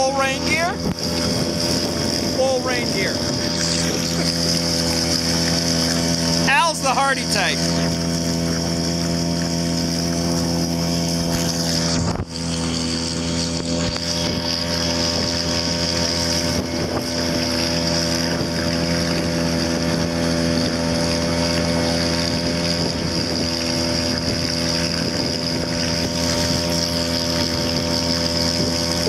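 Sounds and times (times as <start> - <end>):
wind hiss: 0.0 - 6.6
outboard motor running: 0.0 - 29.0.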